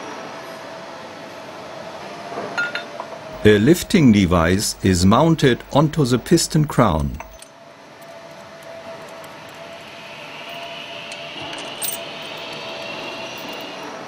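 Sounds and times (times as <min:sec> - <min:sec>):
steady workshop hum: 0:03.3 - 0:14.0
metallic clink of hand tools: 0:07.0 - 0:08.4, 0:11.6 - 0:12.6
faint rising whine: 0:08.3 - 0:14.0.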